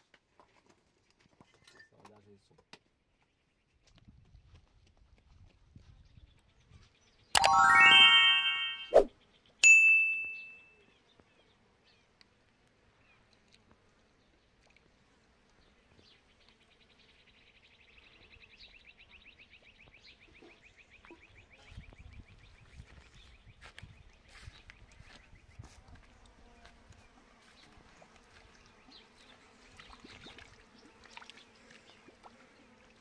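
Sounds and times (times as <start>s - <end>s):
metallic ding: 9.6s - 10.6s.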